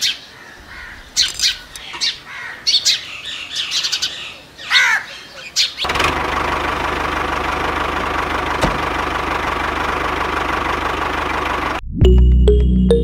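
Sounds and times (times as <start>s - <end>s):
toy tractor engine chugging: 5.9s - 11.8s.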